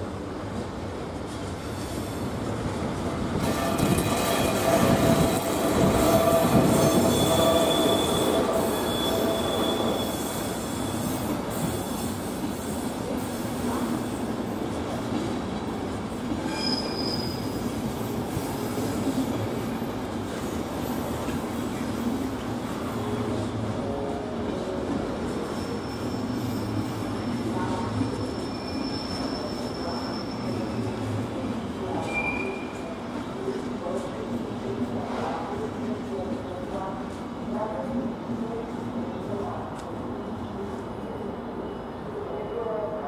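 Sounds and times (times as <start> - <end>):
train rumble and clatter: 0.0 - 43.0
train wheels squealing: 3.4 - 15.0, 16.2 - 23.3, 25.2 - 33.0.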